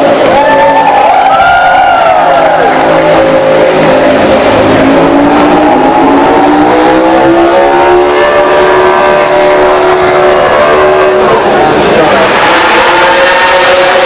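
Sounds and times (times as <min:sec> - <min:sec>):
motorcycle engine revving high: 0:00.0 - 0:14.0.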